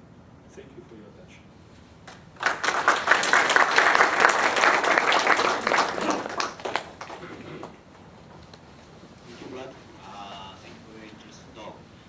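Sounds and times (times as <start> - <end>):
audience applauding: 2.1 - 7.8.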